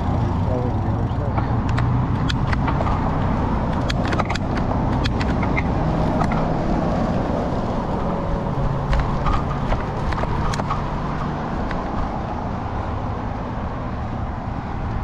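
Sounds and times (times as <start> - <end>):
sharp clicks and rattles: 0.0 - 8.1, 8.7 - 12.2
bicycle rumble: 0.0 - 15.0.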